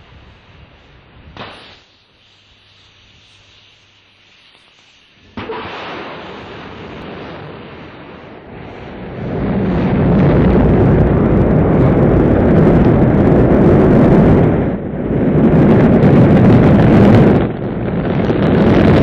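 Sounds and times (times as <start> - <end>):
rocket engines deep rumble: 6.0 - 19.0.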